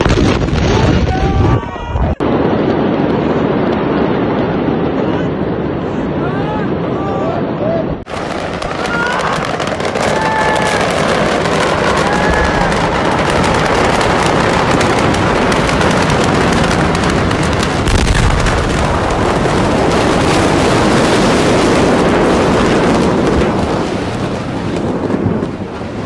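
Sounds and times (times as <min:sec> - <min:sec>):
deep boom: 0:00.0 - 0:05.7, 0:09.8 - 0:23.8
steady rush of fire: 0:00.0 - 0:26.0
fire crackling with rapid pops: 0:08.1 - 0:26.0.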